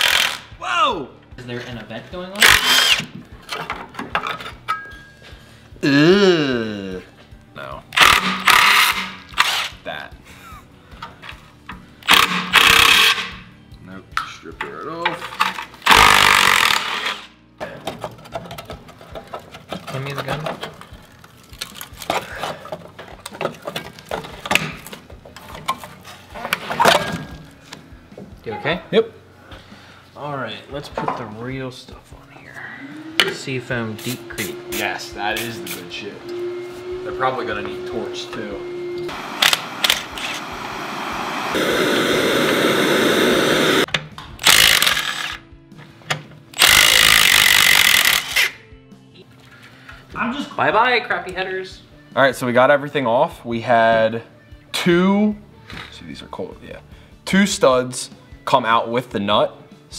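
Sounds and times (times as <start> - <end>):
impact wrench hammering: 2.4 - 3.2, 8.0 - 9.7, 12.0 - 13.4, 15.9 - 17.2, 46.6 - 48.4.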